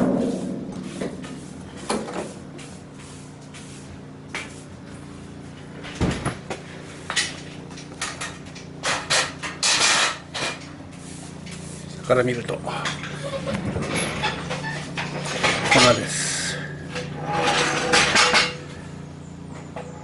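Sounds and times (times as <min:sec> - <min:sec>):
strong thump: 0:00.0 - 0:02.6
scraping rustle: 0:00.0 - 0:06.0, 0:06.6 - 0:19.0
low hum: 0:00.0 - 0:19.6.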